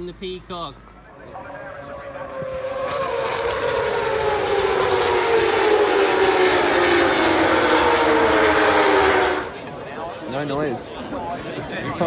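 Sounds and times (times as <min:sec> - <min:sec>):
racing motorcycles at high revs: 0:01.7 - 0:09.7.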